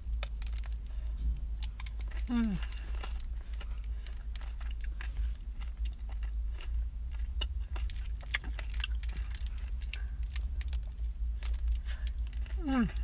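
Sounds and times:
crunchy chewing: 0.0 - 13.0
low rumble inside a car: 0.0 - 13.0.

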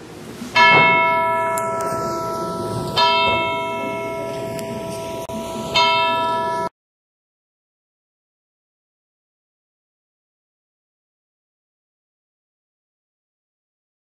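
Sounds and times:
bell ringing: 0.6 - 6.7.

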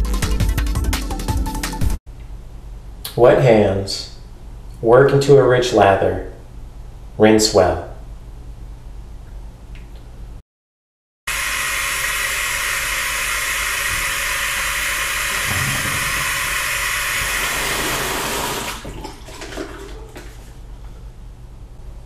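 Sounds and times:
tap running into sink: 13.8 - 20.4.

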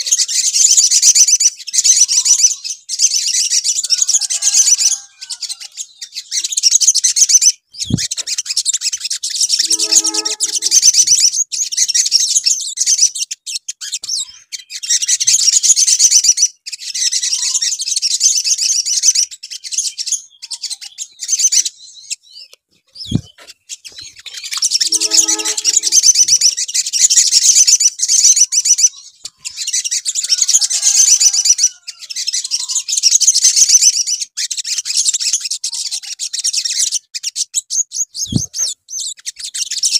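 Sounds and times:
sunbird trilling chatter: 7.8 - 8.4, 9.2 - 11.4, 23.0 - 26.9.

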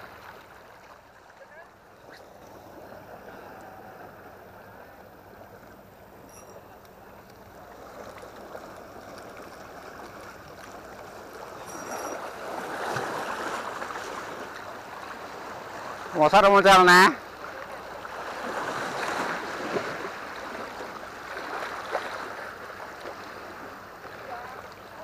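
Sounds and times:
sea water splashing against rocks: 7.3 - 16.2, 17.2 - 25.0.

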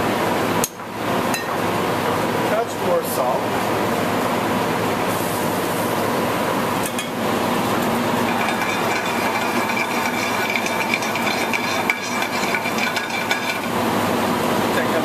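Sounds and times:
metal pans and utensils clinking: 8.3 - 13.7.

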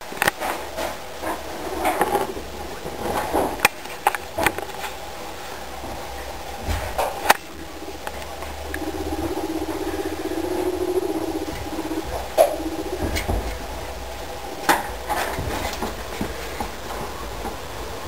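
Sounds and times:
fast even pulsing: 7.0 - 15.4.

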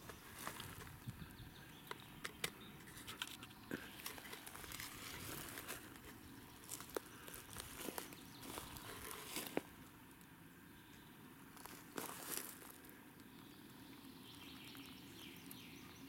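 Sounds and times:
footsteps on pine needles: 0.0 - 1.0, 3.8 - 9.9, 11.6 - 12.9
twigs snapping underfoot: 3.2 - 9.7.

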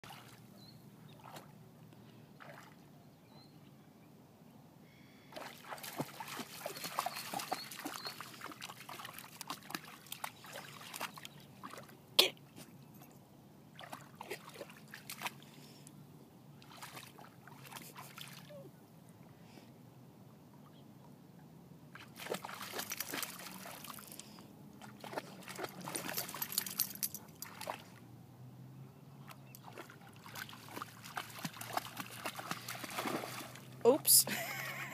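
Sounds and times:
dog splashing in water: 5.4 - 12.0, 13.7 - 15.4, 21.9 - 24.1, 24.8 - 28.0, 29.6 - 33.8.

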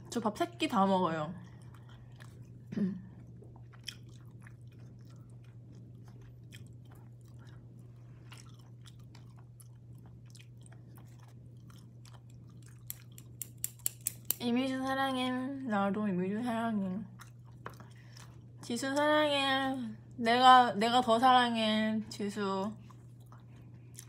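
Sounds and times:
steady low hum: 0.0 - 24.0
person chewing food: 1.4 - 14.4, 17.1 - 18.6, 22.8 - 24.0
wooden chopsticks clicking: 12.9 - 14.4.

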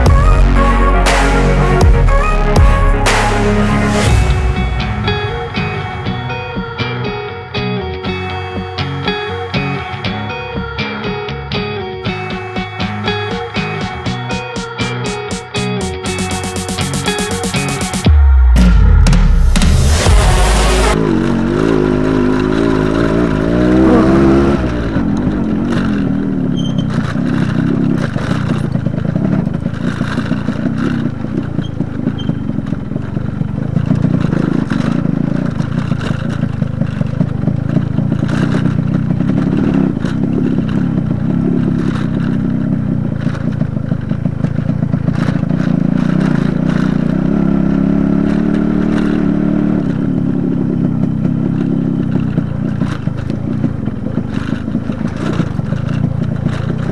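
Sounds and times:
two-stroke motorcycle engine: 0.0 - 56.9
bike clattering over stones: 25.0 - 47.3, 48.1 - 56.9.

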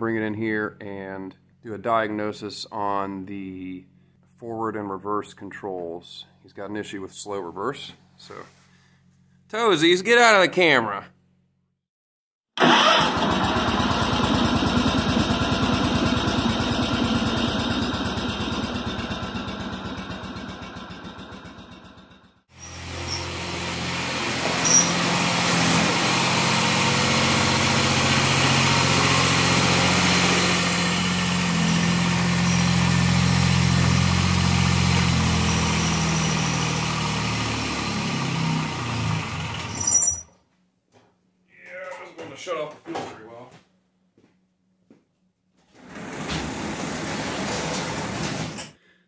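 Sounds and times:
diesel engine running: 12.6 - 39.8.

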